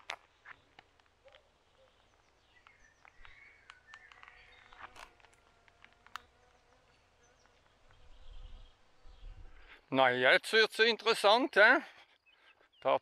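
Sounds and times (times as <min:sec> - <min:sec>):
bird chirps: 0:00.4 - 0:05.0, 0:06.3 - 0:09.8, 0:11.4 - 0:13.0.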